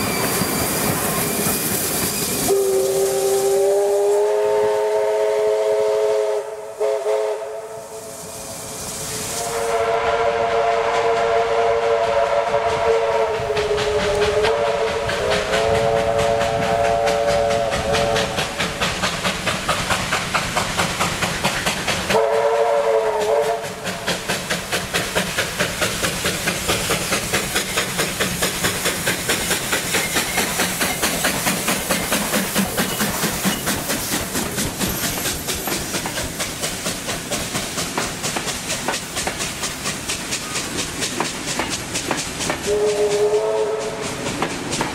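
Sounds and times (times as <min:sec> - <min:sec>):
train wheels clicking over rail joints: 0:00.0 - 0:05.4, 0:10.8 - 0:44.9
steam locomotive whistle: 0:00.0 - 0:18.6, 0:22.1 - 0:24.0, 0:42.6 - 0:44.2
locomotive exhaust chuffing: 0:12.2 - 0:44.9.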